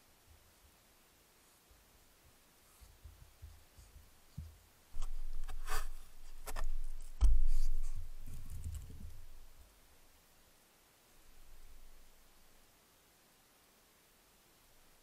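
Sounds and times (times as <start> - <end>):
otter bumping against camera: 4.4 - 9.3.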